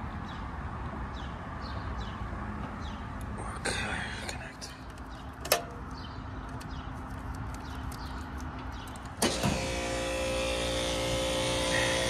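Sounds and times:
compressor and fan humming: 0:08.9 - 0:12.0
contactor clunk: 0:09.2 - 0:11.7.

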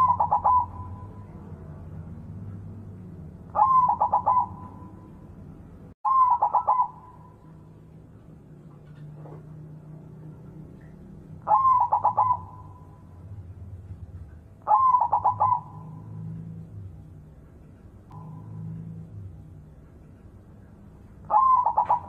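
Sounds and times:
dove cooing: 0:00.0 - 0:01.4, 0:03.5 - 0:05.1, 0:06.1 - 0:07.5, 0:11.4 - 0:13.1, 0:14.6 - 0:16.4, 0:21.3 - 0:22.0.

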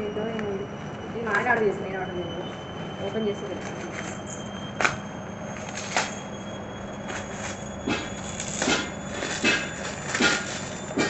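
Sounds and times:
washing machine humming: 0:00.0 - 0:11.0
washing machine rhythmic knock: 0:07.8 - 0:11.0.

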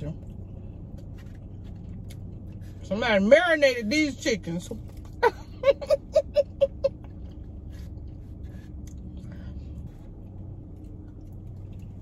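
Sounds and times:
low hum inside car: 0:00.0 - 0:12.0
chewing food with wet clicks: 0:01.6 - 0:02.6, 0:10.3 - 0:12.0.

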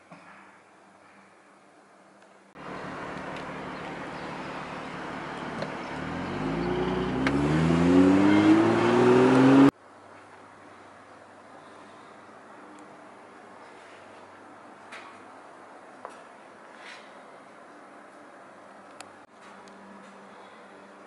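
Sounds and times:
road and wind noise: 0:01.9 - 0:21.0
car engine accelerating: 0:02.6 - 0:09.7.

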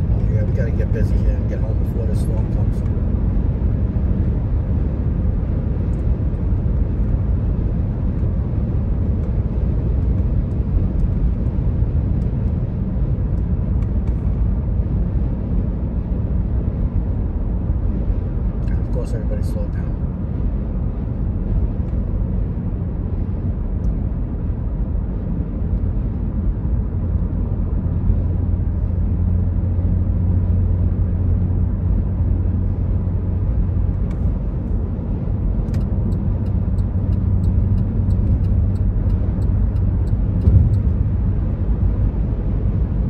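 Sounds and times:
car cabin road rumble: 0:00.0 - 0:43.0
short thump: 0:40.4 - 0:40.9.

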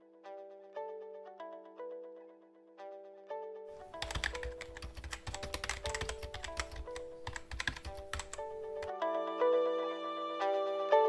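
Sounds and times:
rapid typing on laptop keyboard: 0:03.9 - 0:08.9.

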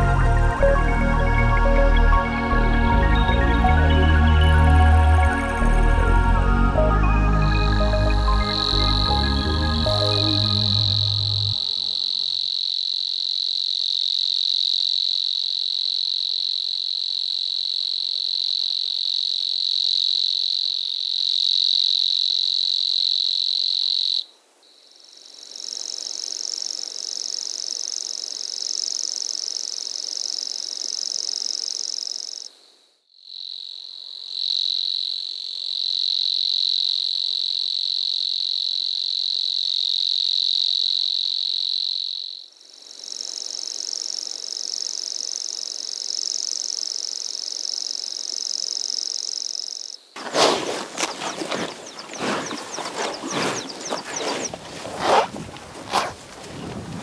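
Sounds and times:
night chorus of calling animals: 0:50.2 - 0:57.0.

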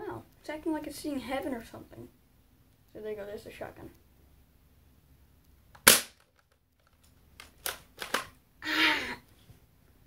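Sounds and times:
airsoft shotgun shot: 0:05.8 - 0:06.2.

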